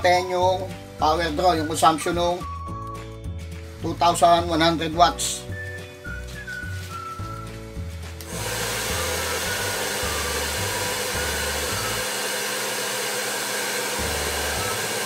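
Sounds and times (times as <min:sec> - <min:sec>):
hair dryer blowing: 0:08.2 - 0:15.0.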